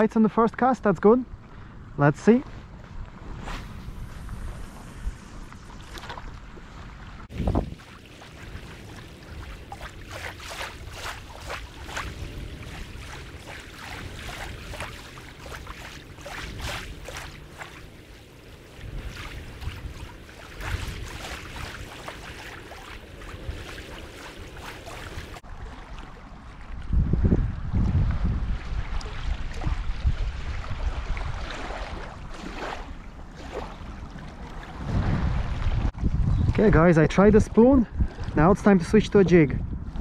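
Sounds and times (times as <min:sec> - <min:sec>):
wind buffeting microphone: 0:01.1 - 0:40.0
waves lapping on pebbles: 0:05.8 - 0:26.9.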